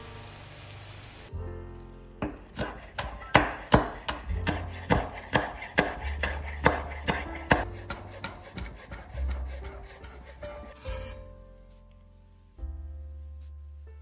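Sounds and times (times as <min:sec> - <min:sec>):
knife chopping on a cutting board: 0:02.2 - 0:11.1.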